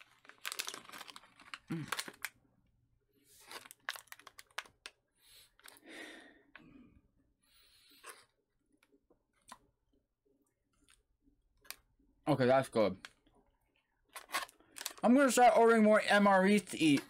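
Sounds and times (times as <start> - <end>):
plastic packaging crinkling and tearing: 0.0 - 2.4, 3.4 - 5.0, 14.2 - 15.5.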